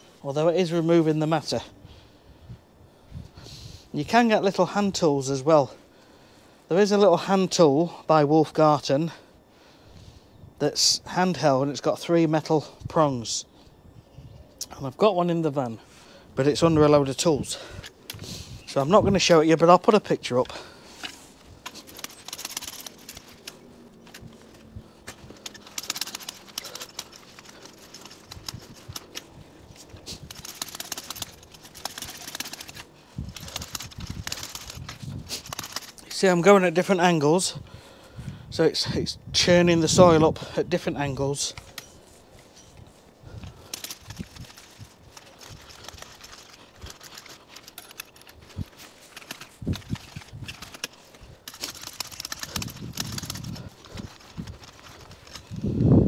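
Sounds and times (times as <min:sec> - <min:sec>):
rake tines scraping soil: 0:20.2 - 0:36.9, 0:41.2 - 0:55.9.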